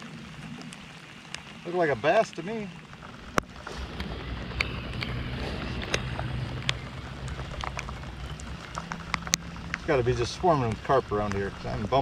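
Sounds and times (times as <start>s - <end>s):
raindrops ticking on boat: 0.0s - 12.0s.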